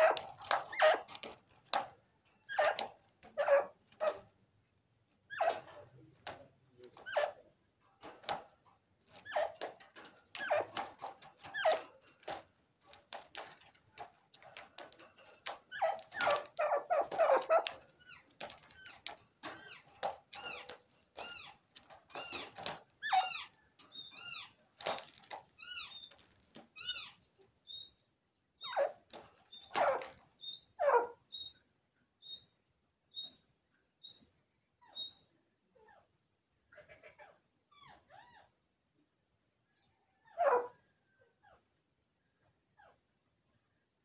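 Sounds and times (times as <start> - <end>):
young bird chirping: 22.2 - 28.9, 30.4 - 31.6, 32.2 - 33.4, 34.0 - 35.3.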